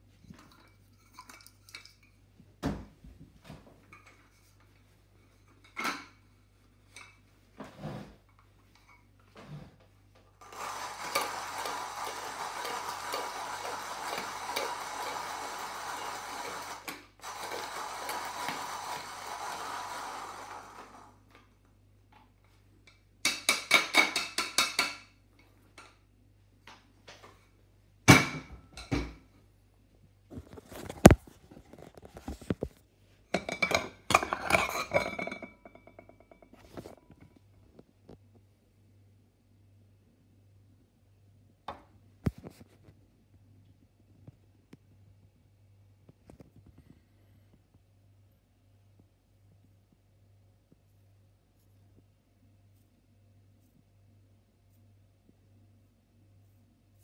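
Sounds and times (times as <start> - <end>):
hand coffee grinder grinding: 10.4 - 21.2.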